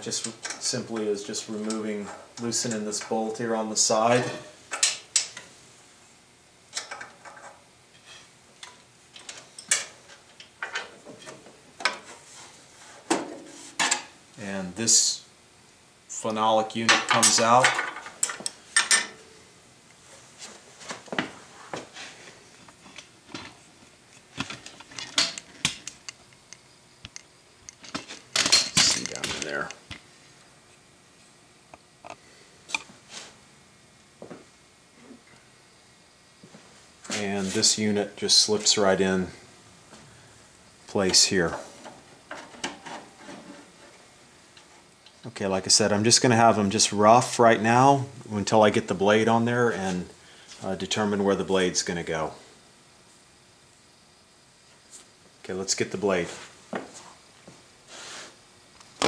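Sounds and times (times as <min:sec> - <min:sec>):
metal tools clattering on saw table: 0:27.8 - 0:29.5.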